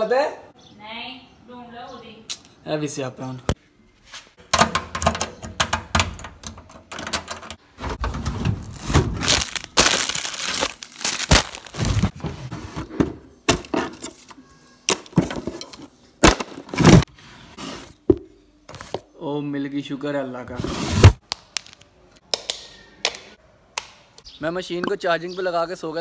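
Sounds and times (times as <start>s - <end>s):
objects clattering in a drawer: 14.9s - 17.1s.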